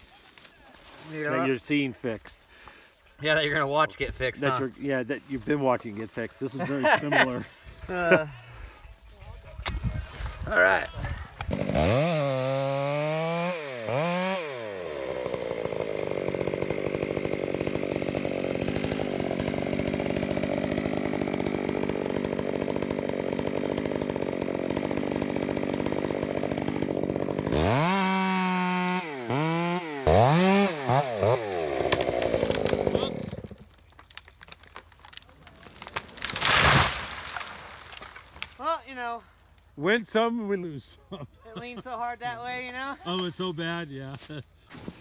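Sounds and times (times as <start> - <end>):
chainsaw cutting tree trunk: 11.3 - 38.6.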